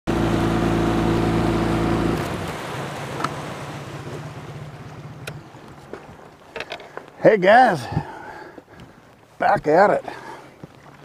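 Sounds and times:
outboard motor running: 0:00.1 - 0:07.2
water rushing along hull: 0:00.1 - 0:11.0.

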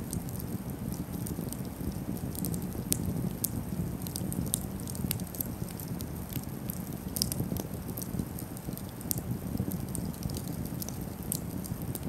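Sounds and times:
campfire crackling and popping: 0:00.0 - 0:12.0.

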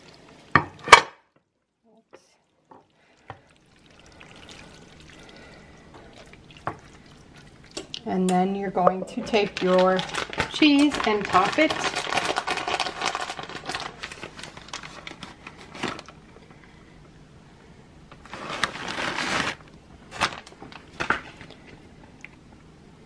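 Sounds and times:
shredded cheese crinkling: 0:09.4 - 0:16.2, 0:18.2 - 0:21.7.

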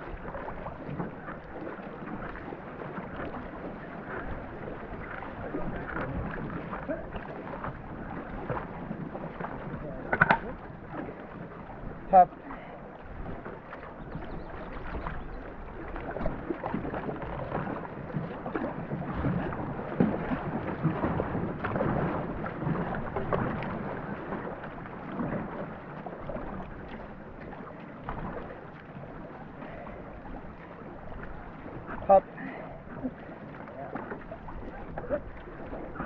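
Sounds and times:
paddles splashing: 0:00.0 - 0:36.0
water rushing along hull: 0:00.0 - 0:36.0.

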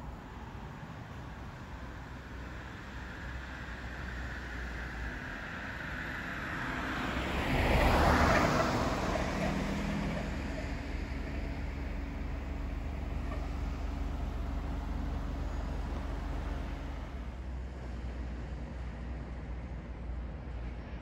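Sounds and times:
road vehicle passing by: 0:01.8 - 0:21.0.

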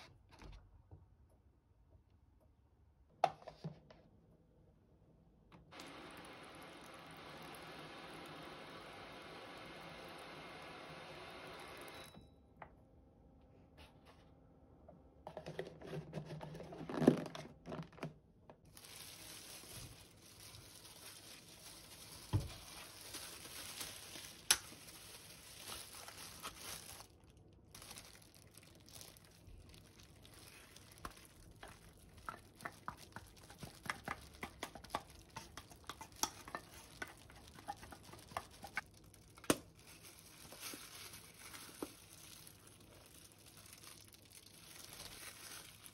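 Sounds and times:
plastic gloves crinkling: 0:18.6 - 0:45.9
wooden spoon stirring and scraping: 0:30.0 - 0:38.9.

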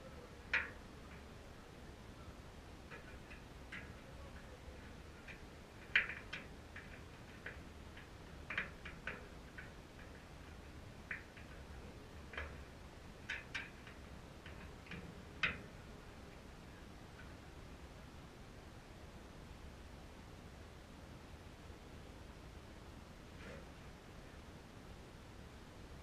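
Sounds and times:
light clicks and ticks: 0:00.0 - 0:18.1.

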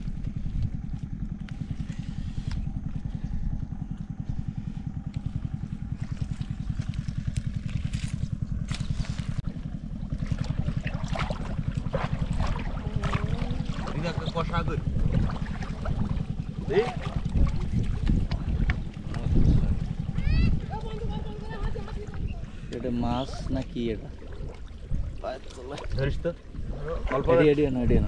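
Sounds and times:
small engine running: 0:00.0 - 0:28.0
splashing and clattering: 0:05.9 - 0:27.3.

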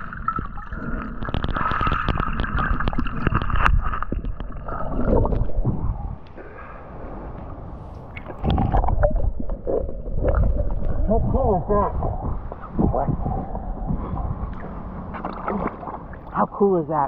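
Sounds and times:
water sloshing and splashing: 0:00.0 - 0:06.6, 0:07.3 - 0:16.6
muffled underwater bubbling: 0:00.0 - 0:06.8, 0:08.1 - 0:16.8.

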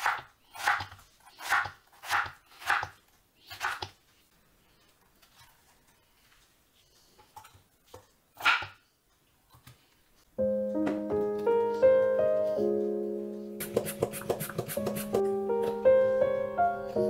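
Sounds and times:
piano music: 0:10.3 - 0:17.0.

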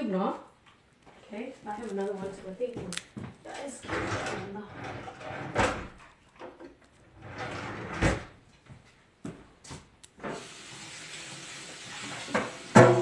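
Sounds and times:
cabinet doors and drawers shutting: 0:03.8 - 0:08.4.

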